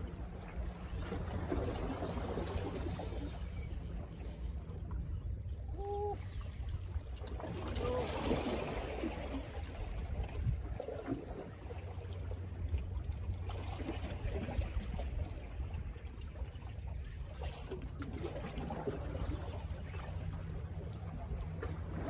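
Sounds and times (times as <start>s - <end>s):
steady low rumble: 0.0s - 8.0s
small waves lapping on rocks: 5.7s - 22.0s.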